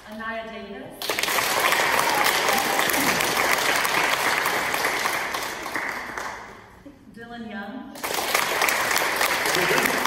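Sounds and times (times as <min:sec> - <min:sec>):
audience applauding: 0:01.0 - 0:06.6, 0:08.0 - 0:10.0.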